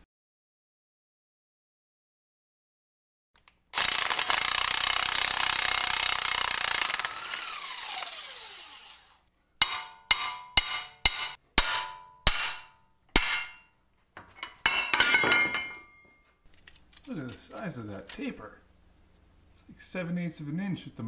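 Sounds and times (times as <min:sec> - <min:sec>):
power tool whining: 0:03.8 - 0:09.3
metal clinking: 0:13.2 - 0:17.6.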